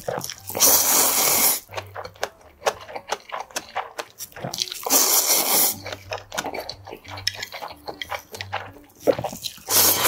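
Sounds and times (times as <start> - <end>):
wet chewing: 0.0 - 10.0
loud noodle slurp: 0.1 - 1.7, 4.3 - 6.0, 9.1 - 10.0
mouth-smacking clicks: 1.7 - 9.4.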